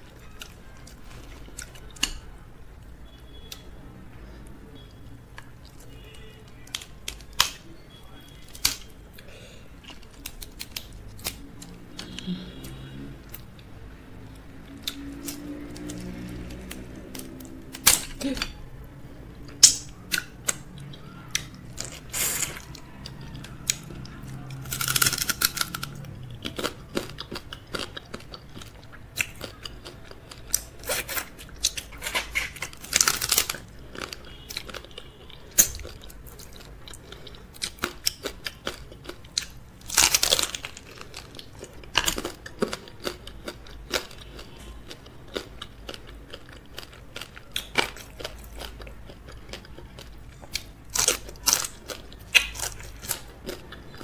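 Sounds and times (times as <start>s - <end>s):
chewing: 0.0s - 2.4s, 3.0s - 18.6s, 19.3s - 54.0s
crab shells crunching in mouth: 14.7s - 18.2s, 19.5s - 54.0s.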